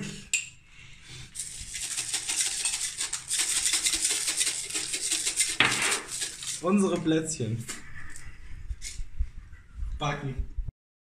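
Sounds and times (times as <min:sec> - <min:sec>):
sprinkles rattling in shaker: 0:01.4 - 0:06.9.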